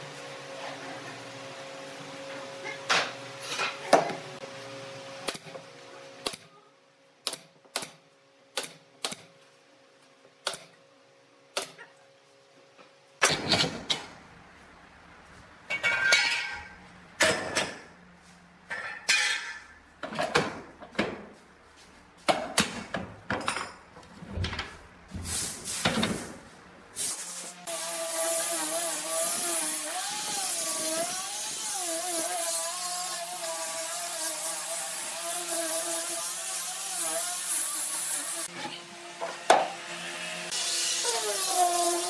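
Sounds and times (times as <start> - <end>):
clamps scraping and clattering: 15.7 - 17.9.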